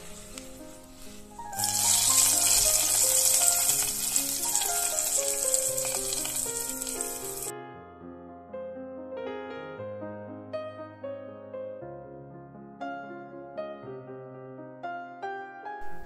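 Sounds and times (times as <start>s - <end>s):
hot oil sizzling: 0.0s - 7.5s.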